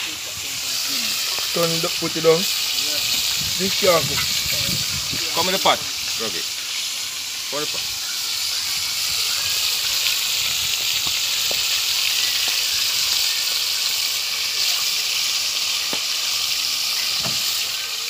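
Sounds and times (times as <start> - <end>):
fish sizzling in hot oil: 0.0 - 18.0
oil popping: 0.9 - 6.4, 9.1 - 17.8.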